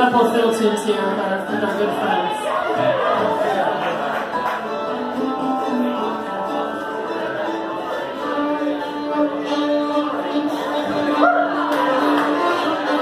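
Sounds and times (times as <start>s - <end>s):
plucked strings: 0.0s - 13.0s
bowed fiddles: 4.6s - 13.0s.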